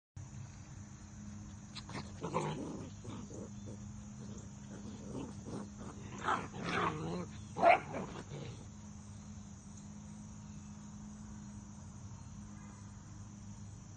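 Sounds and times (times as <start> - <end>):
puppies growling and yapping: 1.8 - 8.7.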